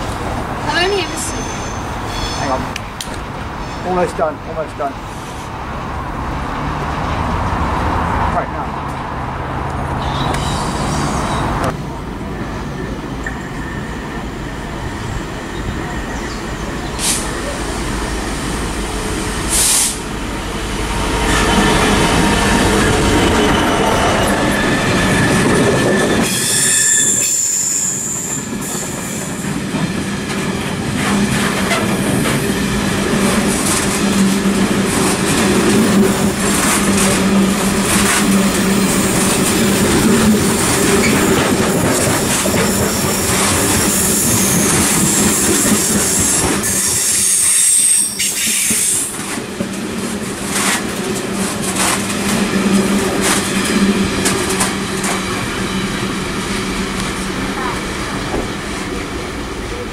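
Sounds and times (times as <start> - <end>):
train wheels rumbling on rail: 0.0 - 59.9
high-pitched wheel squeal: 1.0 - 2.6, 21.4 - 29.2, 46.1 - 49.1
clickety-clack over rail joints: 28.4 - 47.5, 48.2 - 55.6, 56.9 - 59.0.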